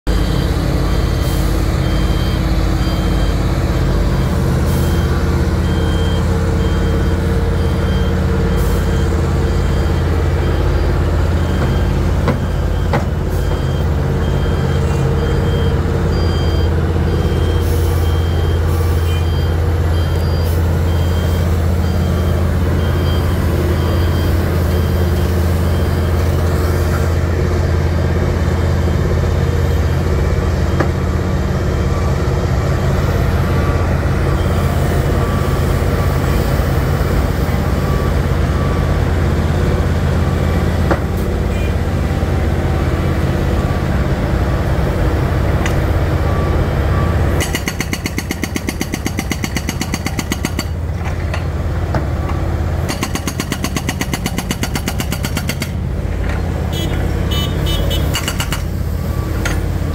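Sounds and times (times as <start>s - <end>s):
backup alarm beeping: 0.1s - 26.7s, 31.9s - 39.2s
diesel engine running under load: 0.1s - 59.9s.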